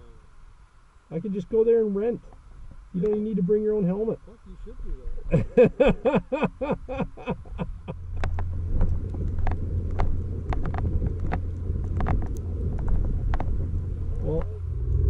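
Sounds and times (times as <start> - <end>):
snowmobile engine idling: 3.0 - 15.0
man laughing: 5.3 - 8.2.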